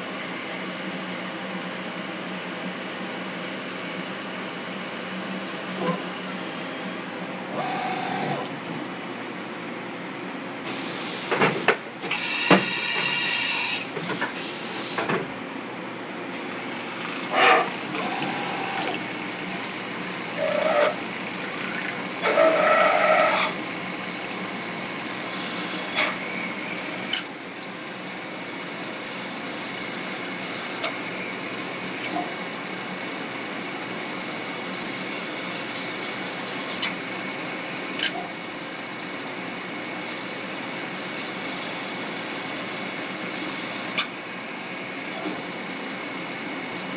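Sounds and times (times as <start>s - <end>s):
short pitched machine tones: 6.2s - 7.3s, 20.4s - 23.5s
milling machine cutting metal: 20.2s - 21.2s.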